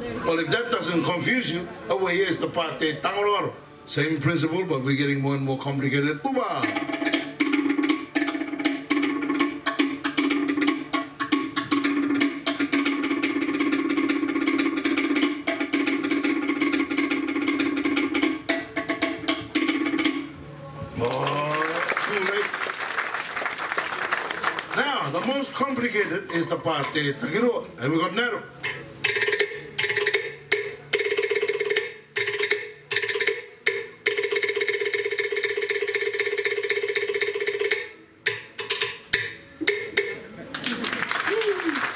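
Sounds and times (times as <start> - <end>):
wooden slit drums knocking: 6.6 - 20.4, 28.6 - 40.3.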